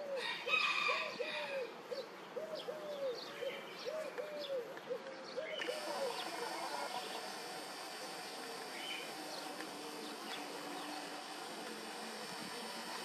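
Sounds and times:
bird chirps: 1.9s - 7.3s
faint hiss: 5.5s - 13.0s
thin high hum: 5.6s - 13.0s.

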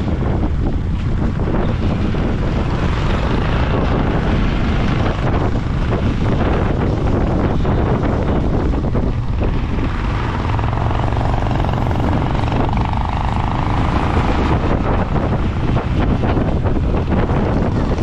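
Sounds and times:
motorcycle engine running: 0.0s - 18.0s
wind rushing over microphone: 0.0s - 18.0s.

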